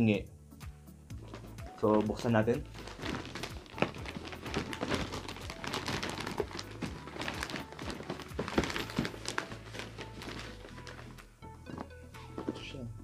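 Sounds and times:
plastic bag rustling: 1.2 - 12.6
cardboard box knocking: 5.7 - 9.4.

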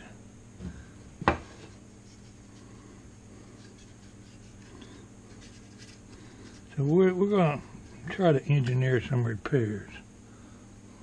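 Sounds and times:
sharp knock on workbench: 1.2 - 1.4
faint rubbing and handling: 1.5 - 8.2.

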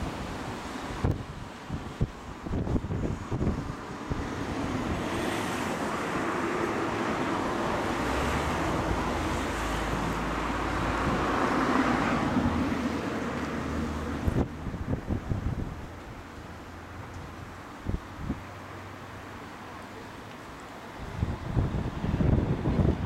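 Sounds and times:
low engine hum: 0.0 - 23.0
road traffic passing: 0.0 - 23.0.

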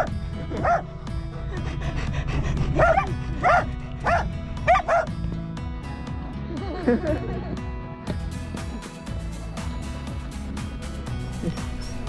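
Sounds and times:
dog barking: 0.0 - 0.8, 2.8 - 5.1
background music: 0.0 - 12.0.

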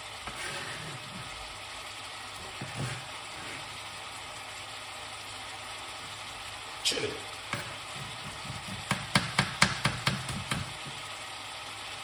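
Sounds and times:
sharp knocks from kitchen work: 7.5 - 11.0.

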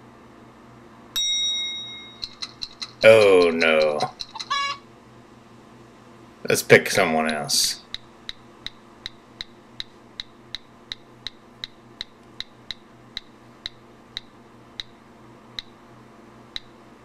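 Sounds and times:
roulette wheel ticking: 2.2 - 4.7.

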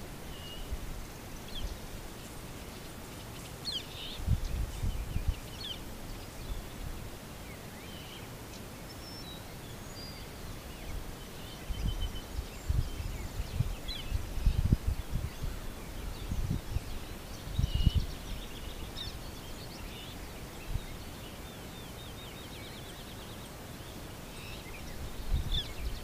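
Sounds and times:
songbirds singing: 0.0 - 26.0.

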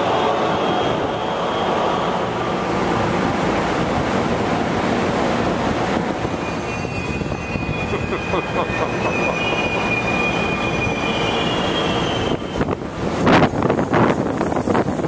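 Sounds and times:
train cars rumbling past: 0.0 - 15.0
high wheel squeal: 6.2 - 15.0.

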